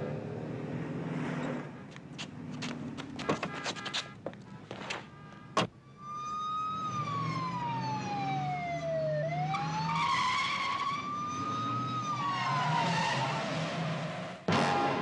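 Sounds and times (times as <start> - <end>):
rushes of passing car noise: 0.0 - 3.2
police siren wailing: 5.8 - 14.0.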